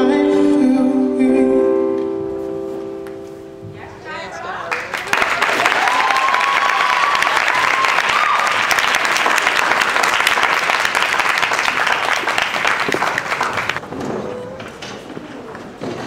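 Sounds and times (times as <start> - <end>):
audience applauding: 4.7 - 13.8
person whooping: 5.5 - 8.7.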